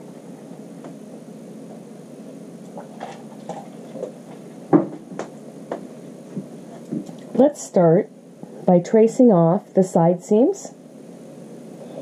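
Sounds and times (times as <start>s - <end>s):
low background noise: 0.0s - 12.0s
taps and knocks on worktable: 4.7s - 7.1s.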